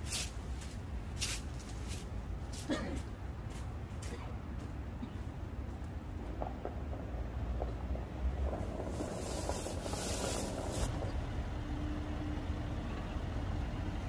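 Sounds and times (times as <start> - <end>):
car engine rumble: 0.0 - 14.0
tyres crunching on gravel: 8.3 - 11.1
loud hiss: 8.8 - 11.0.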